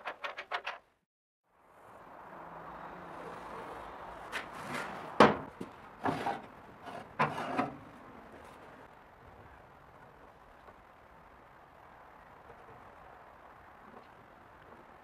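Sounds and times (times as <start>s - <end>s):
metal grate knocking and scraping: 0.0s - 0.9s.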